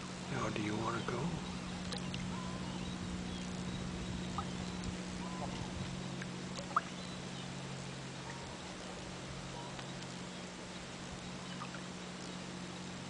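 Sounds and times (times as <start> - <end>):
steady low hum: 0.0 - 13.0
distant bird chirps: 0.3 - 10.6, 11.2 - 12.5.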